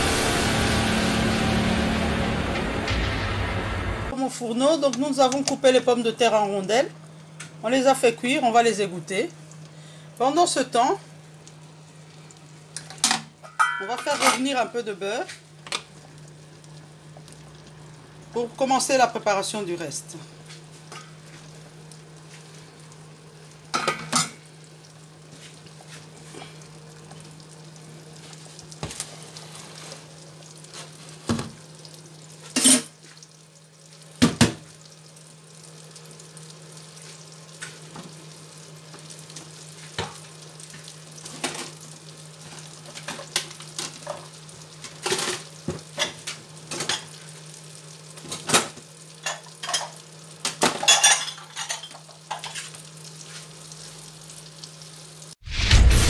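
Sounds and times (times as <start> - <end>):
steady low hum: 0.0 - 5.2
butter sizzling in a frying pan: 6.9 - 55.4.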